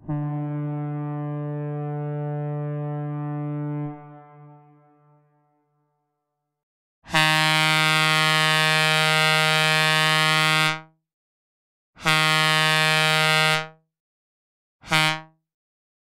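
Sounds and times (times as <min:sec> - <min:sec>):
synthesized air horn blasts: 0:00.0 - 0:05.6, 0:07.1 - 0:10.8, 0:12.0 - 0:13.7, 0:14.8 - 0:15.3.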